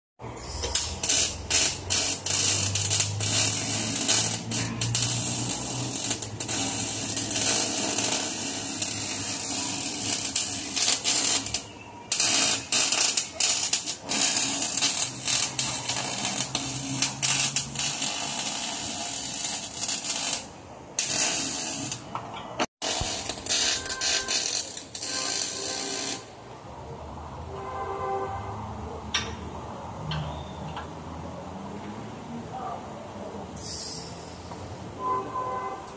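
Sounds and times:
electric arc welding crackling: 0.4 - 22.1, 22.8 - 26.4.

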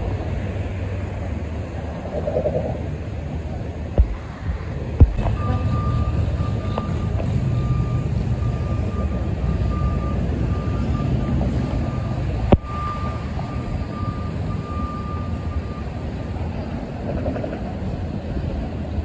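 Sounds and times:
truck engine running: 2.9 - 19.0
reversing alarm beeping: 5.2 - 16.1.

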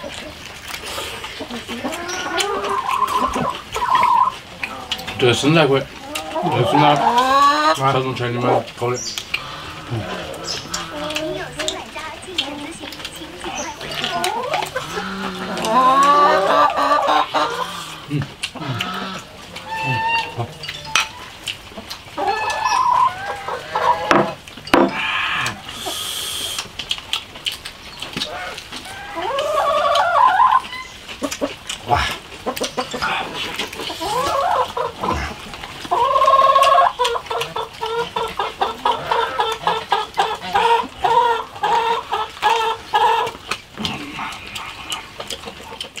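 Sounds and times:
chickens clucking and cackling: 0.0 - 46.0
slurping and gnawing: 0.0 - 46.0.

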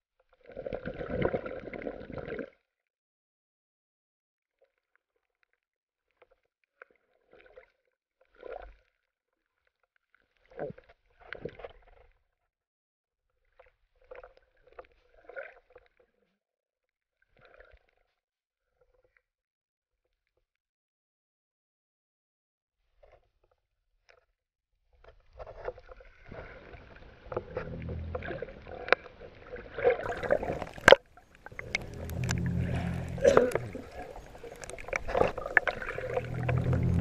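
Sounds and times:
muffled underwater water sloshing: 25.3 - 37.0.

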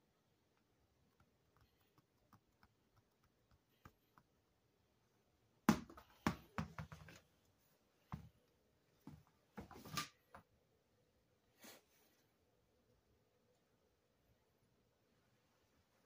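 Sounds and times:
small ball bouncing on floor: 5.6 - 7.2.

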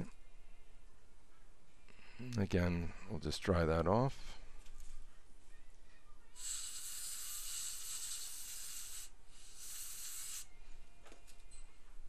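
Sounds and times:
air syringe hissing: 6.4 - 10.5.

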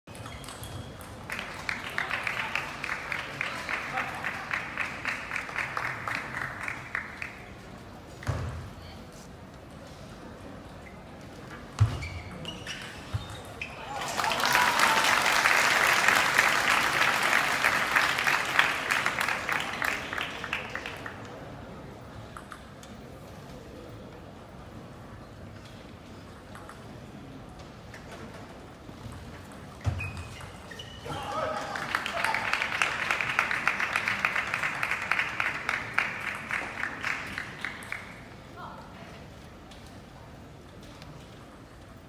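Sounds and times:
crowd clapping: 1.2 - 7.6, 13.9 - 21.4, 31.5 - 38.3.

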